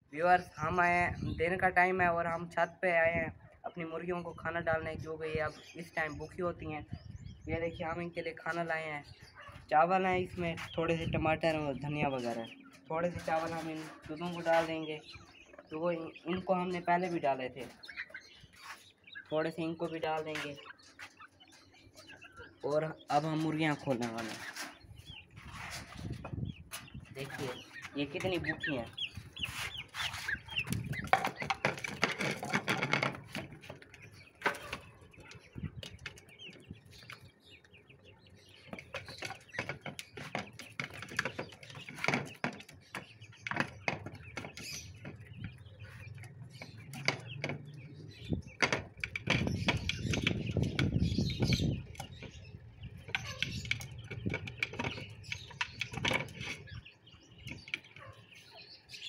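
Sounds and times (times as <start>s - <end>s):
hens clucking: 8.1s - 58.9s
beaks tapping on a plate: 26.8s - 58.2s.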